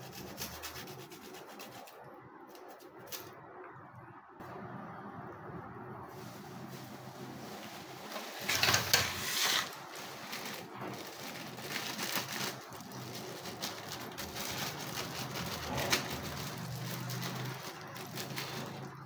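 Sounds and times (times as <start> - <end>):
plastic crinkling and rustling: 6.1 - 19.0.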